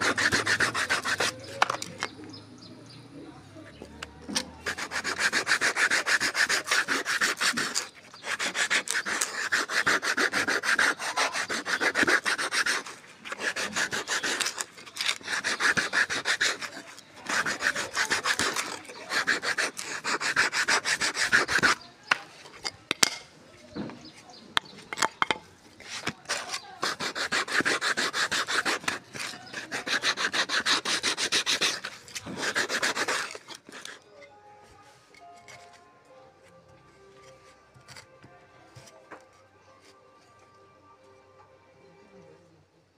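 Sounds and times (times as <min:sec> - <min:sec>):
sandpaper rasping on wood: 0:00.0 - 0:02.1, 0:04.3 - 0:21.9, 0:25.8 - 0:34.0.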